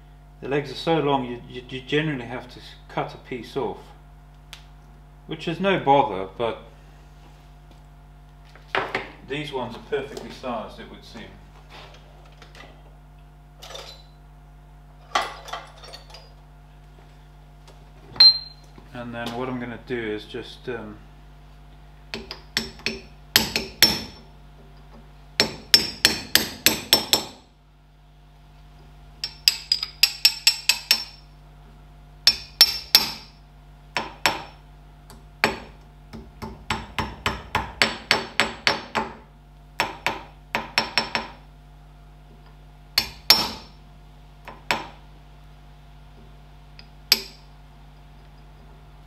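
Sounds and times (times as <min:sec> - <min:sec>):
hammer tapping steel punch: 0:22.1 - 0:24.2, 0:25.4 - 0:27.4, 0:29.2 - 0:31.2, 0:32.3 - 0:33.4, 0:34.0 - 0:39.2, 0:39.8 - 0:41.4, 0:43.0 - 0:43.8, 0:46.8 - 0:47.5.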